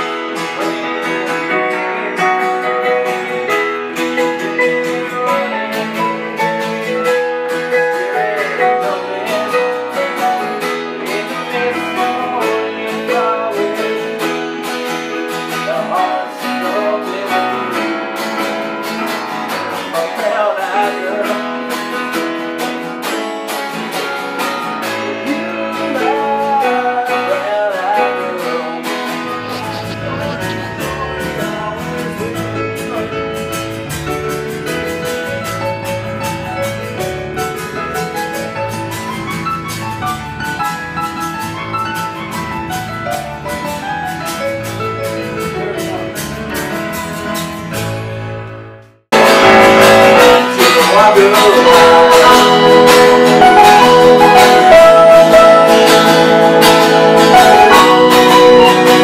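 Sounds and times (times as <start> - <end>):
person singing: 0.0 - 18.1, 19.7 - 22.0, 24.8 - 34.0, 49.2 - 59.0
acoustic guitar: 0.0 - 59.0
stage piano: 0.0 - 59.0
loud music: 28.3 - 59.0.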